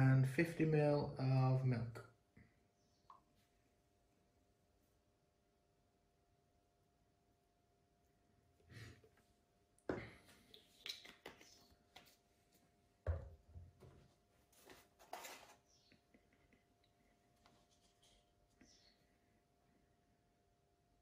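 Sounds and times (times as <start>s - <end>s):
containers knocking on countertop: 13.0s - 13.4s.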